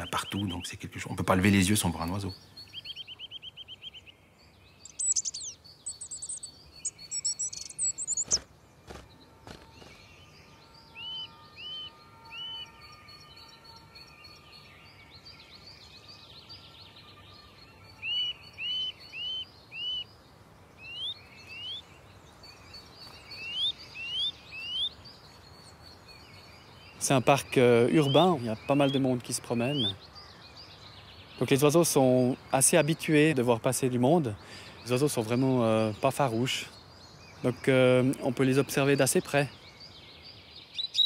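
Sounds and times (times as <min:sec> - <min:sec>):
small birds singing: 0:00.0 - 0:41.0
nuthatch whistled calls: 0:04.8 - 0:09.0.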